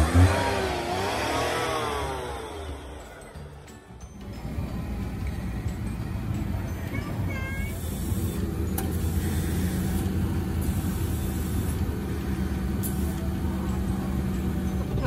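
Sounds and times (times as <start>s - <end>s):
air hissing through hose: 7.7s - 12.0s.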